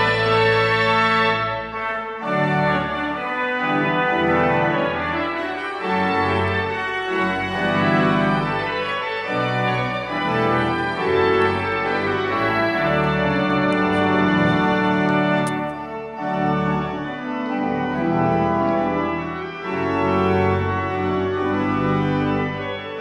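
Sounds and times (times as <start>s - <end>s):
pipe organ playing chords: 0.0s - 23.0s.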